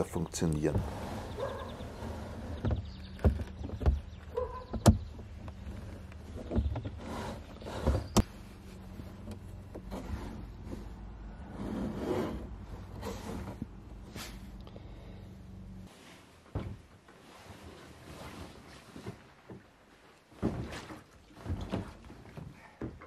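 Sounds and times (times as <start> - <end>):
soft rustle: 15.8 - 22.7.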